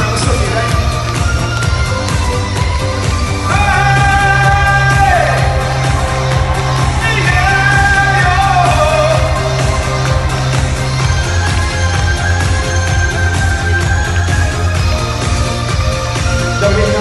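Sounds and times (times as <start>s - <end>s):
pop backing music with beat: 0.0s - 17.0s.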